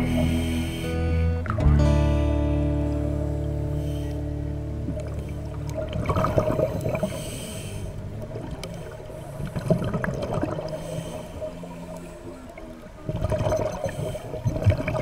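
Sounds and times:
regulator inhalation hiss: 0.0s - 1.0s, 7.0s - 8.0s
gurgling exhaled bubbles: 4.8s - 15.0s.

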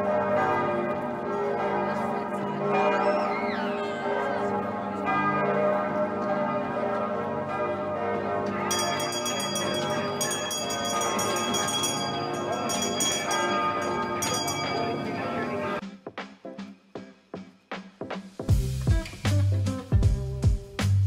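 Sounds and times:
church bells pealing: 0.0s - 15.8s.

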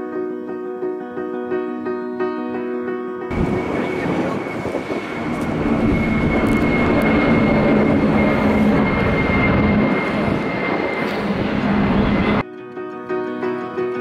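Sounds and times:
jet engines roaring and whining: 3.3s - 12.4s.

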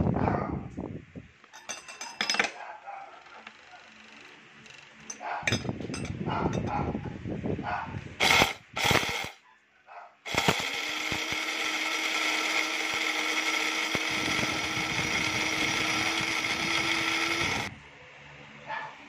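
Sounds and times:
electric blade grinder whining: 8.2s - 9.4s, 10.3s - 17.7s.

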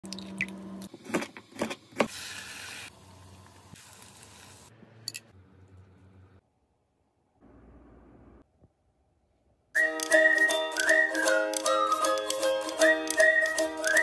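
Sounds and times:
food sizzling in frying pan: 2.1s - 4.7s
chopsticks clicking on metal box: 10.0s - 14.0s.

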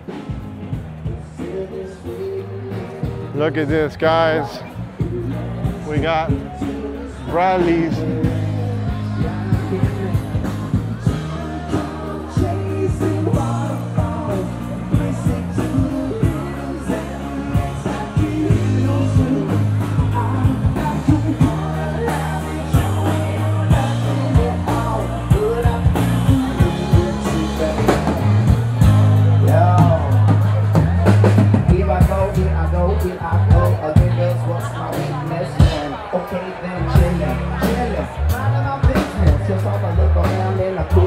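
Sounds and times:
live rock band: 0.0s - 41.0s
person singing: 1.0s - 3.4s, 6.3s - 30.8s.

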